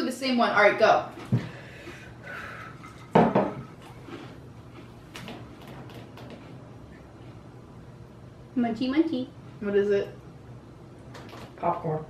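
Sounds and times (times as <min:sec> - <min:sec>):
knocks on wooden table: 0:03.2 - 0:03.6.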